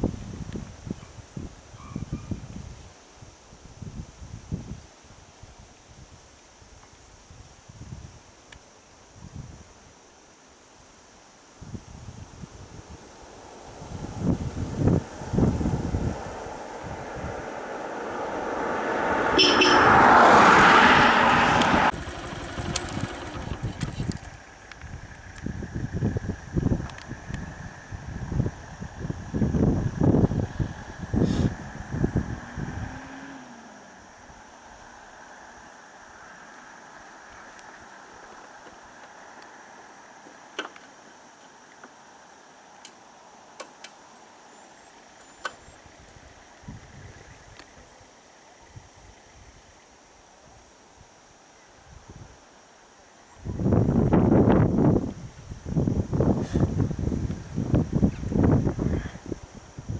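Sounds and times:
low wind rumble: 0.0 - 6.2, 11.4 - 40.2, 45.0 - 49.8, 53.3 - 59.9
outdoor background hiss: 0.0 - 59.9
road vehicle passing: 12.3 - 40.2.

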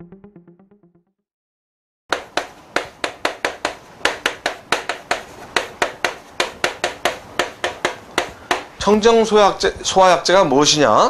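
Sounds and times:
chalk tapping on a chalkboard: 2.1 - 8.8.

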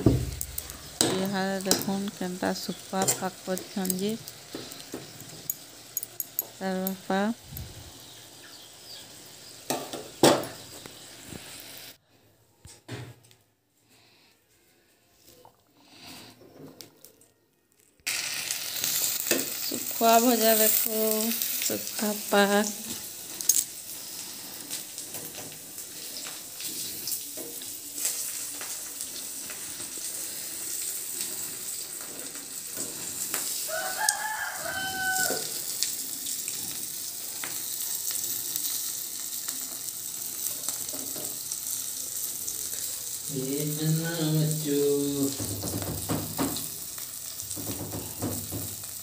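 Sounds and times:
fish sizzling in hot oil: 0.0 - 12.0, 18.1 - 49.0
rooster crowing: 33.6 - 35.7.

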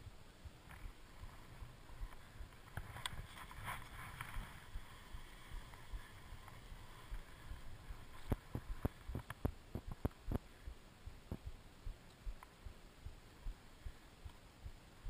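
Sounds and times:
skis sliding over snow: 1.1 - 9.1.

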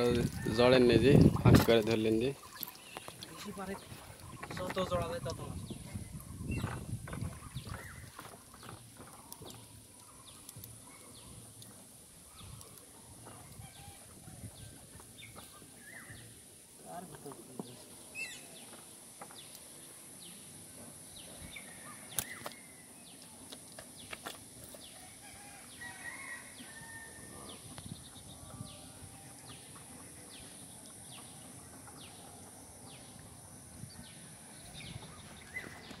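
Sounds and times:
birds chirping: 0.0 - 36.0.

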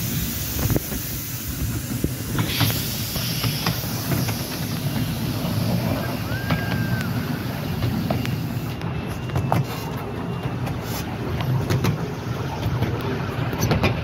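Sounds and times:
steam hiss: 0.0 - 8.9
train wheels rumbling on rails: 0.0 - 14.0.

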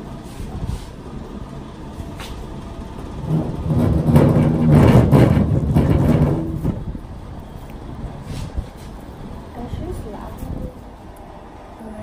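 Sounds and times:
knocks: 3.3 - 6.9.

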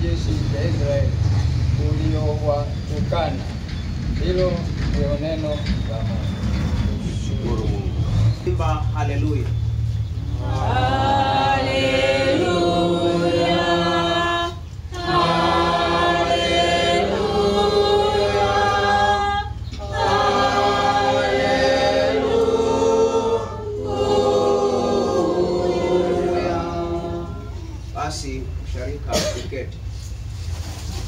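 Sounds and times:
steady low hum: 0.0 - 31.0
congregation singing unaccompanied: 10.2 - 28.9.

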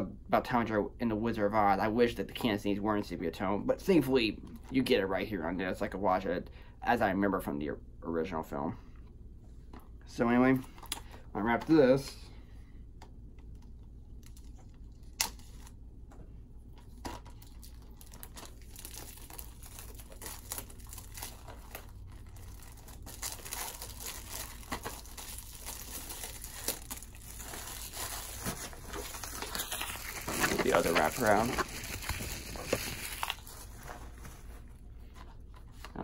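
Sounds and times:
plastic wrap crinkling: 16.8 - 34.7.

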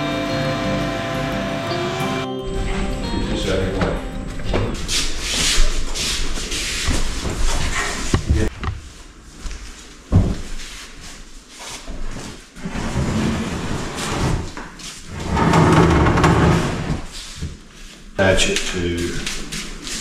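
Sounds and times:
shuffling and handling noise: 4.5 - 12.6, 17.1 - 20.0.

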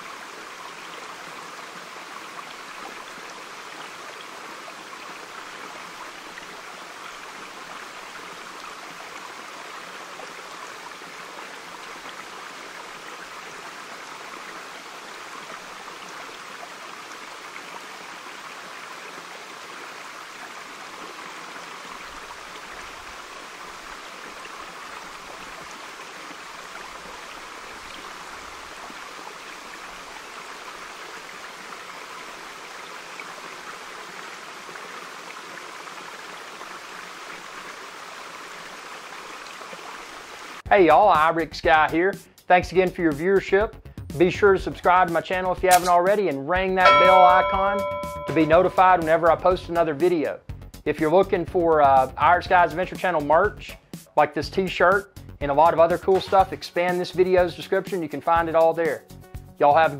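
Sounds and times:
stream babbling over rocks: 0.0 - 40.6.

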